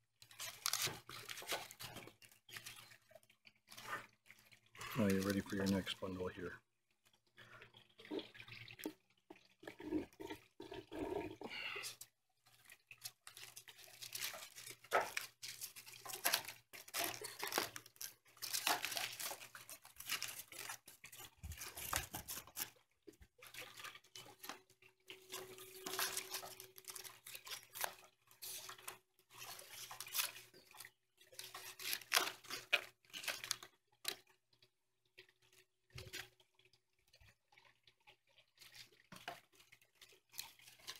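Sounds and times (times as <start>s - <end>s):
dry reed stalks rustling and crackling: 0.3s - 3.0s, 12.6s - 22.7s, 25.8s - 33.6s.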